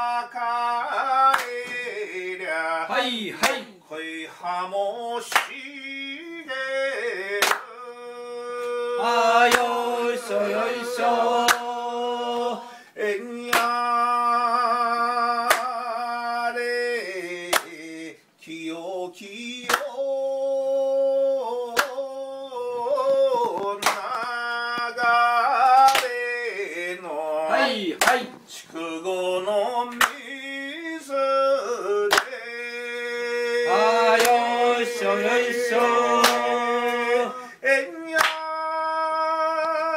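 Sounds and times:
person singing unaccompanied: 0:00.0 - 0:39.9
hand clapping: 0:01.3 - 0:01.9, 0:03.4 - 0:03.7, 0:05.3 - 0:05.6, 0:07.4 - 0:07.7, 0:09.4 - 0:09.8, 0:11.4 - 0:11.7, 0:13.5 - 0:13.8, 0:15.4 - 0:15.8, 0:17.5 - 0:17.8, 0:19.6 - 0:19.9, 0:21.8 - 0:22.0, 0:23.0 - 0:24.2, 0:25.6 - 0:26.2, 0:28.0 - 0:28.4, 0:29.9 - 0:30.2, 0:32.1 - 0:32.4, 0:34.1 - 0:34.6, 0:35.8 - 0:37.1, 0:38.2 - 0:38.5.

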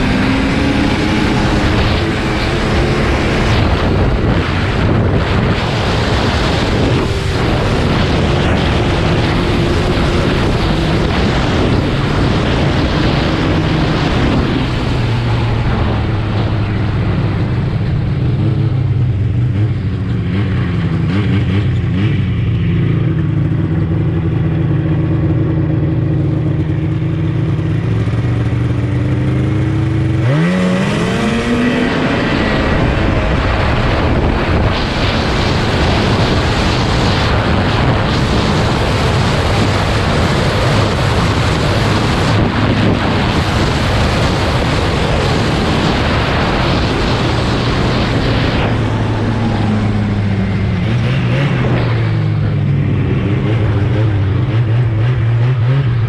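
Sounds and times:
snowmobile engine running and revving: 0:00.0 - 0:56.0.

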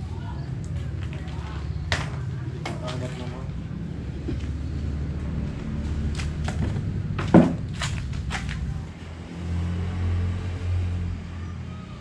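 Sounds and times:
low steady rumble: 0:00.0 - 0:09.2.

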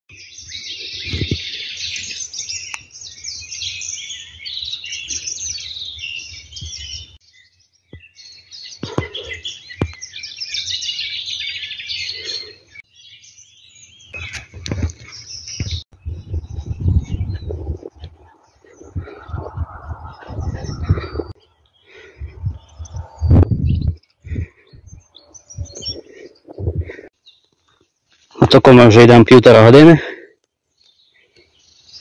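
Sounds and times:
small birds chirping: 0:00.1 - 0:32.0
dull low thumps: 0:15.6 - 0:18.2, 0:22.2 - 0:27.1.

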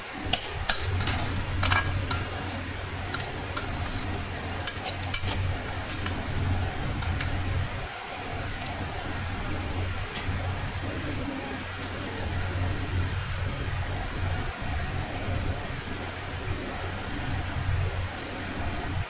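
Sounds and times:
steady low hum: 0:00.0 - 0:19.0
metal spatula scraping a pan: 0:00.3 - 0:06.2.

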